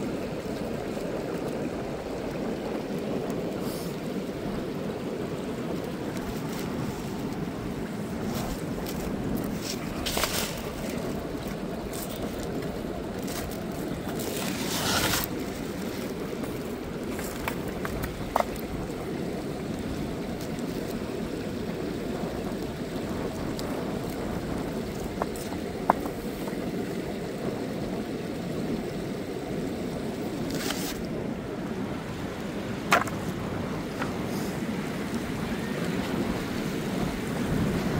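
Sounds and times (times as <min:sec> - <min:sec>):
ocean surf washing: 0:00.0 - 0:37.9
rushes of wind: 0:00.0 - 0:37.9.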